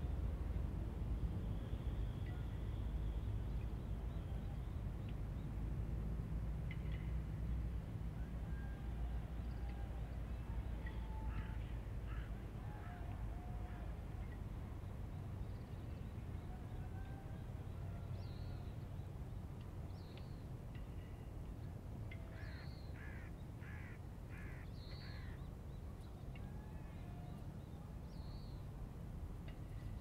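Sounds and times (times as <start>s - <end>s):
crow cawing: 23.0s - 25.4s.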